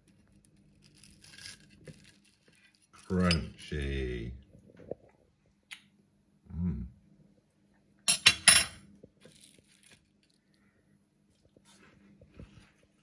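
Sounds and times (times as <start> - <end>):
faint steady hum: 0.0 - 13.0
cutlery clinking on a plate: 8.1 - 8.8.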